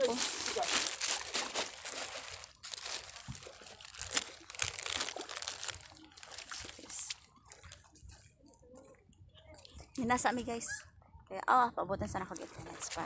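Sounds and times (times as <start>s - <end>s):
phone rustling and crinkling: 0.0s - 8.3s
shallow water sloshing: 0.0s - 9.0s, 12.2s - 13.0s.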